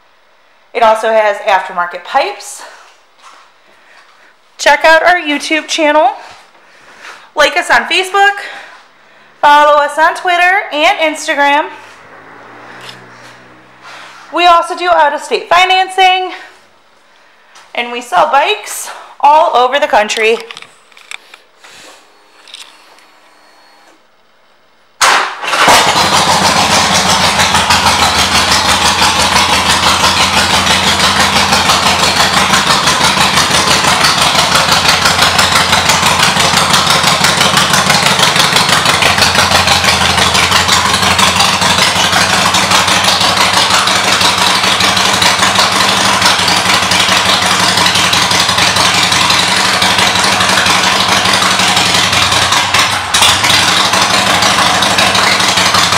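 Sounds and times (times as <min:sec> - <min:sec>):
motorcycle engine starting and idling: 0:07.2 - 0:16.7, 0:25.0 - 0:55.9.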